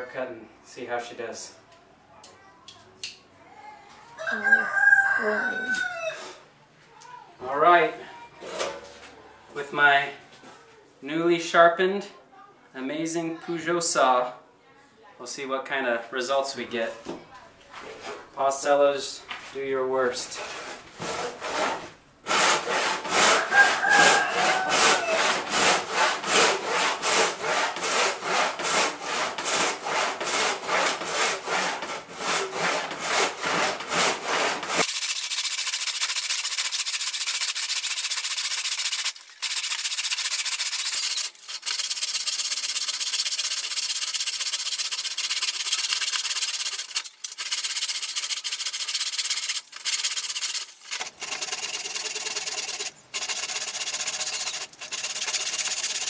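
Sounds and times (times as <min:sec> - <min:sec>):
hand saw cutting wood: 0:17.9 - 0:18.3, 0:20.2 - 0:56.0.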